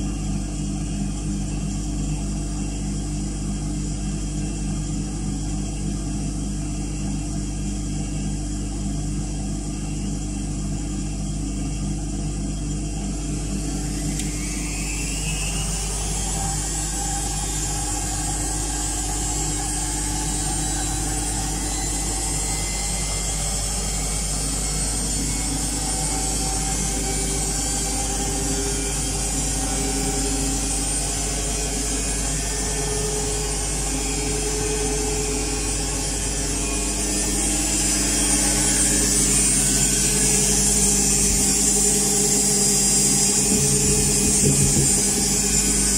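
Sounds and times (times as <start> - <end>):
washing machine motor whirring: 0.0 - 45.9
rising whine: 13.2 - 45.9.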